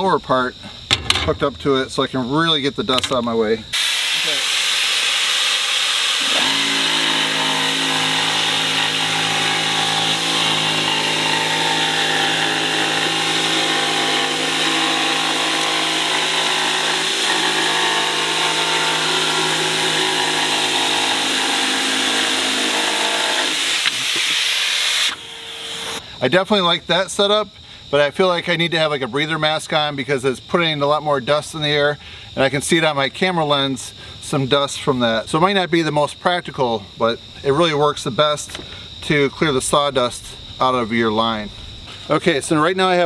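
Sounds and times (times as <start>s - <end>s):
shop vacuum blowing: 3.8s - 26.0s
jigsaw sawing through board: 5.7s - 26.0s.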